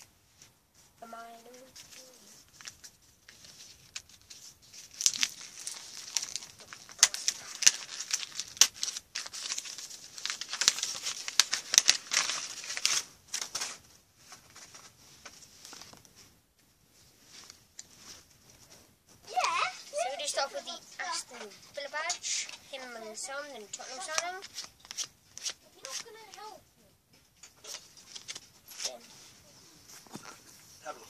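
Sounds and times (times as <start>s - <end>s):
faint handling sounds: 0.0s - 31.0s
wrapper tearing and crinkling: 3.6s - 13.8s, 23.8s - 26.5s, 27.6s - 29.0s.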